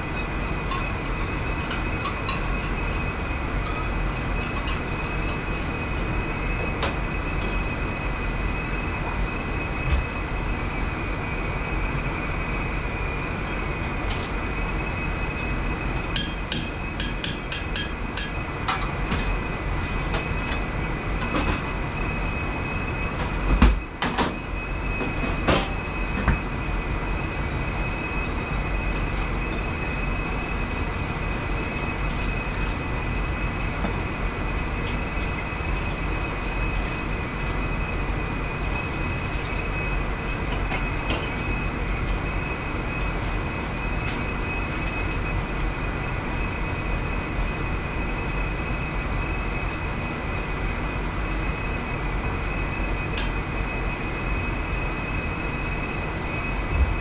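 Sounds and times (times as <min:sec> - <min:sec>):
kitchen exhaust hood noise: 0:00.0 - 0:57.0
thin high whine: 0:24.6 - 0:45.6.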